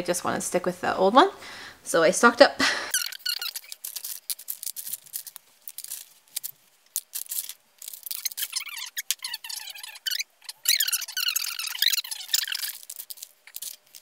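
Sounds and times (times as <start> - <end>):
plastic tubes clicking and rattling: 2.9 - 14.0.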